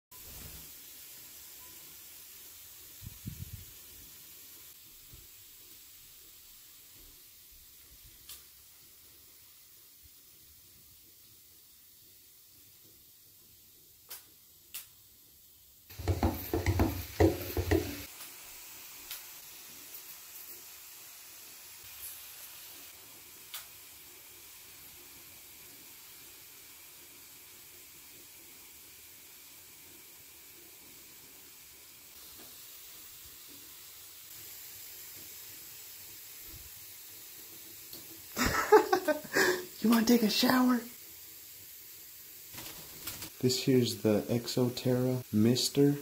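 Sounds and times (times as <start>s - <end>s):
faint steady hiss: 0.1s - 46.0s
pressure mister spraying: 15.9s - 19.3s
bird flapping wings: 42.5s - 43.4s.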